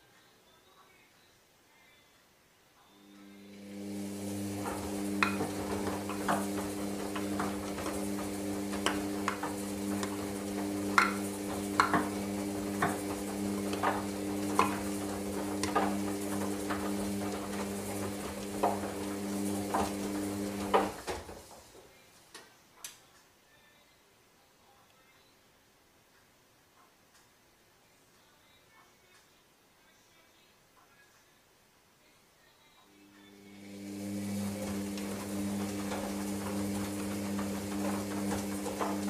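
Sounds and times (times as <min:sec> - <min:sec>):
washing machine motor humming: 0:03.2 - 0:21.8, 0:33.1 - 0:39.0.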